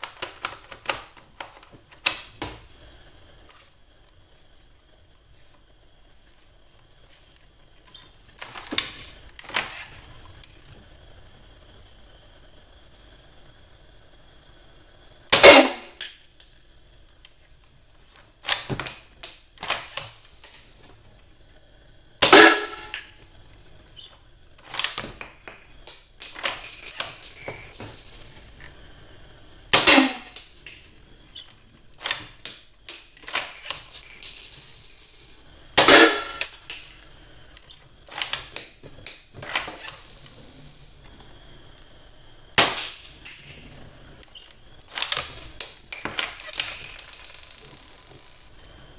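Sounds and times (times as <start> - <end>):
toy dart rifle popping: 15.3 - 16.2, 22.2 - 23.1, 29.8 - 30.5, 35.8 - 36.8.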